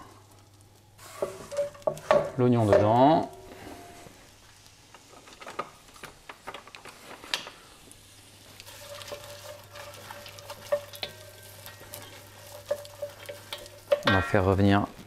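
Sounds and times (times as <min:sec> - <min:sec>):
onion sizzling in hot oil: 0:00.0 - 0:15.0
wooden spoon scraping a pot: 0:01.0 - 0:03.0, 0:08.6 - 0:14.5.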